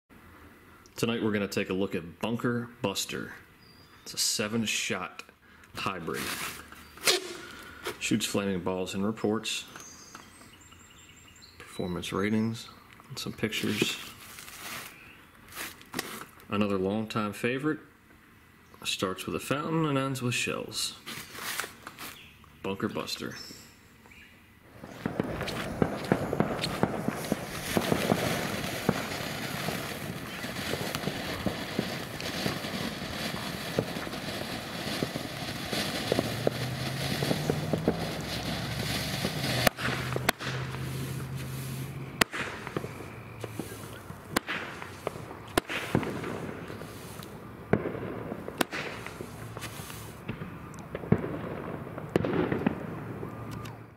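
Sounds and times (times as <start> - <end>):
firework bangs: 5.8 - 8.1, 24.7 - 53.6
firework fountain hissing: 5.8 - 8.1, 24.6 - 50.5.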